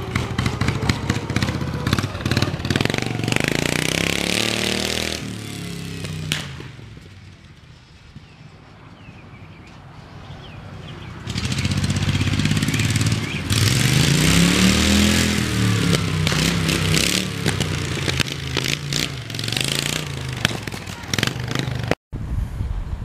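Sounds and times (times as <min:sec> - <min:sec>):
loud riding mower engine: 0:00.0 - 0:07.5, 0:10.8 - 0:22.0.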